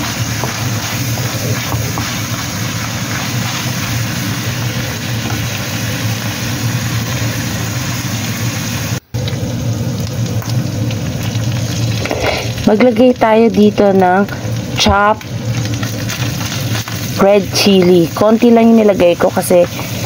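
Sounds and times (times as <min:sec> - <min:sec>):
meat sizzling in a wok: 0:00.0 - 0:20.0
plastic spatula stirring: 0:00.4 - 0:02.4.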